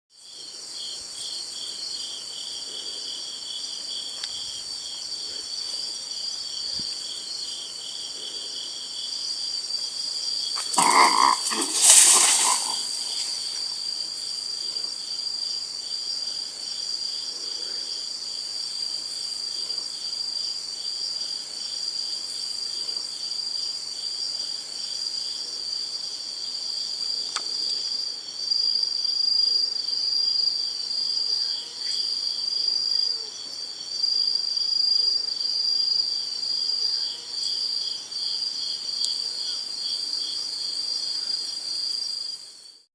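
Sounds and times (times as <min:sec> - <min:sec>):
pulsing insect song: 0:00.1 - 0:42.9
crickets trilling: 0:00.2 - 0:42.8
loud rustle: 0:10.6 - 0:13.8.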